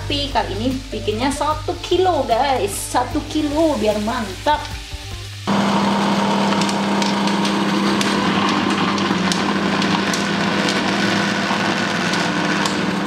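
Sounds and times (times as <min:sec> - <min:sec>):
blender motor humming: 0:03.2 - 0:13.0.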